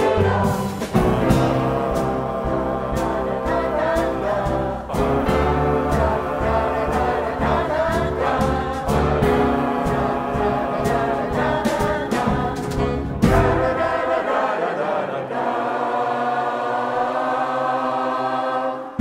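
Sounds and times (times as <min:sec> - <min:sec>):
jazz band playing: 0:00.0 - 0:14.0
drum and cymbal hits: 0:00.0 - 0:14.1
mixed choir singing: 0:00.0 - 0:19.0.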